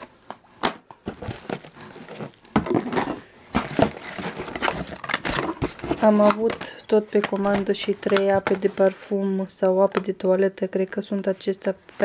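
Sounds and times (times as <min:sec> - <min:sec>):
plastic bags crinkling and rustling: 0:00.0 - 0:09.0.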